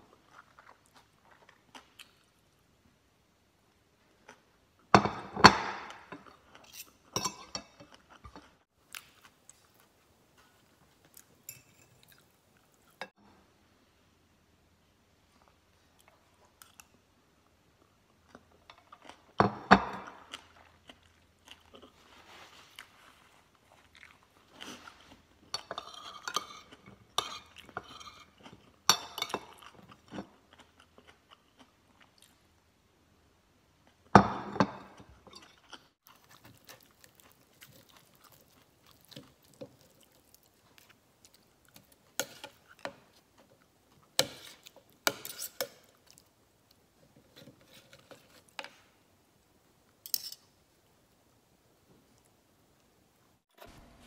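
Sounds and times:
person chewing and crunching: 0.0s - 2.3s, 20.1s - 32.6s, 35.4s - 43.2s.

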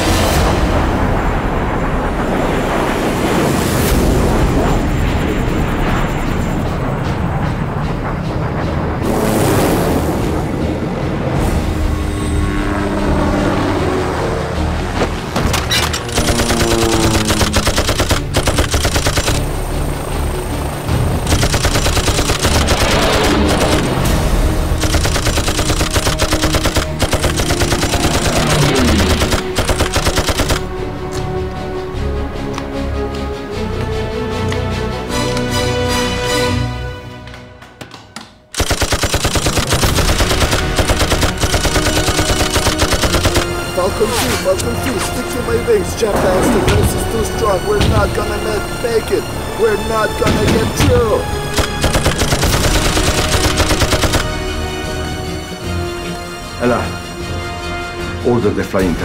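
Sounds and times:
music: 0.0s - 59.0s
sharp clicks: 15.4s - 19.6s, 21.2s - 24.1s, 24.7s - 31.2s, 37.3s - 43.6s, 51.4s - 54.4s
machine gun firing bursts: 15.5s - 19.6s, 21.0s - 24.0s, 24.6s - 30.7s, 38.6s - 43.6s, 50.3s - 54.4s.

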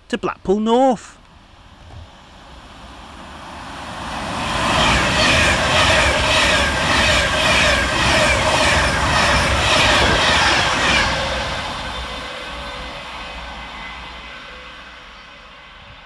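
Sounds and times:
electric train passing at speed: 1.2s - 16.0s.

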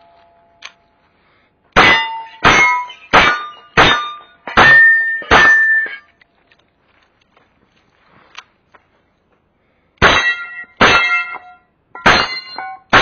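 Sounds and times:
steel target ringing: 1.8s - 6.1s, 10.0s - 13.0s.

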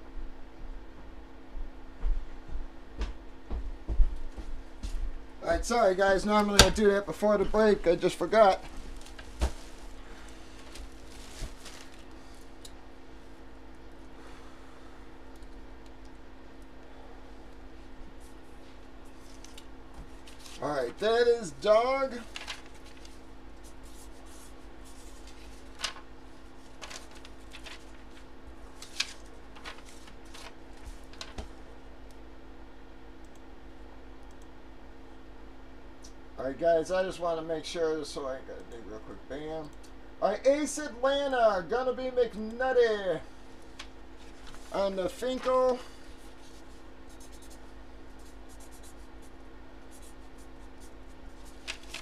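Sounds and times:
steady background hum: 0.0s - 52.0s
paper cards rustling: 8.4s - 12.2s, 19.1s - 20.7s, 22.1s - 31.6s, 43.7s - 49.1s, 49.9s - 52.0s
marker scratching on paper: 46.4s - 49.3s, 49.9s - 51.6s
marker pen writing: 47.1s - 47.6s, 48.2s - 49.3s.

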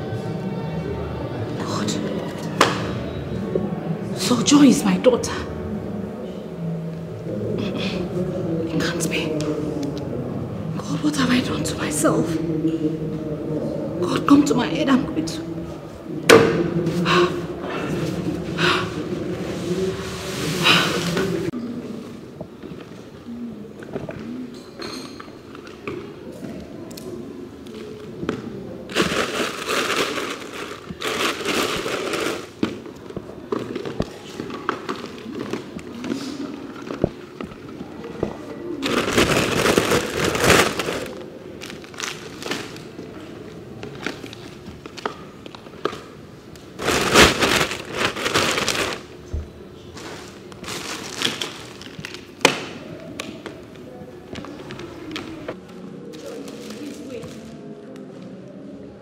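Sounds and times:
rummaging in plastic basket: 28.9s - 37.8s, 38.8s - 42.9s, 46.8s - 49.2s, 50.0s - 52.2s.

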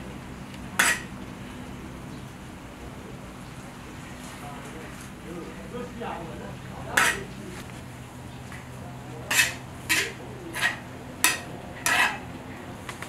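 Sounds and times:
metal skimmer scraping a cauldron: 0.8s - 1.1s, 6.9s - 7.4s, 9.2s - 12.3s.

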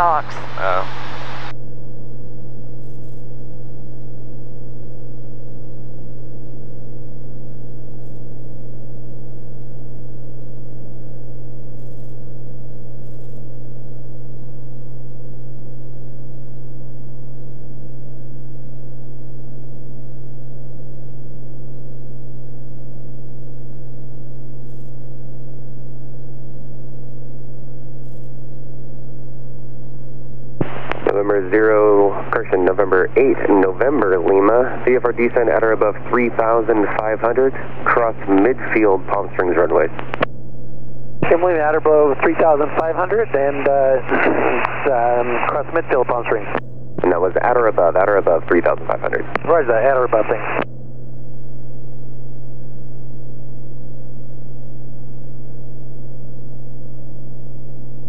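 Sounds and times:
propeller plane engine drone: 30.3s - 53.9s.

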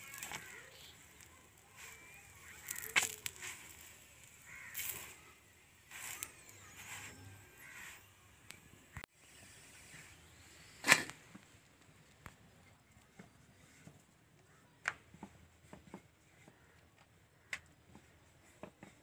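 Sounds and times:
crows cawing: 0.0s - 5.4s, 6.0s - 8.1s.

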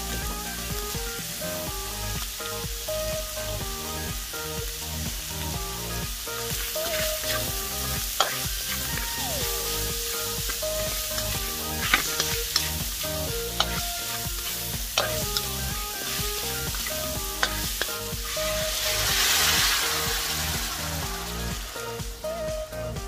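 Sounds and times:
water hissing in hot wok: 0.0s - 22.4s
food sizzling in a wok: 0.0s - 22.8s
spatula scraping and knocking wok: 6.6s - 8.9s, 9.6s - 21.4s.

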